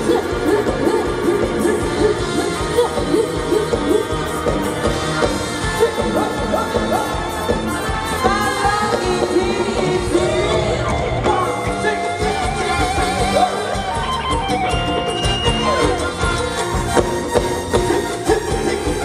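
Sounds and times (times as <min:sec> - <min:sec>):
person singing: 0:00.0 - 0:04.4, 0:08.2 - 0:14.8
live band music with steady beat: 0:00.0 - 0:19.0.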